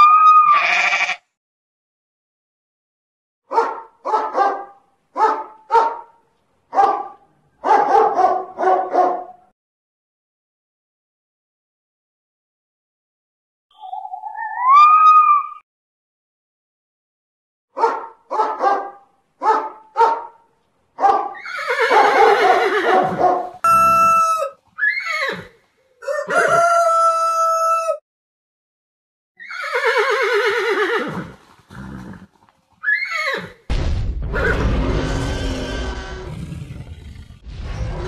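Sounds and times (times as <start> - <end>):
bark-like calls: 3.5 - 9.4, 17.8 - 24.5
rooster crowing: 23.6 - 24.6, 26.0 - 28.0
loud rough roar: 34.3 - 38.0.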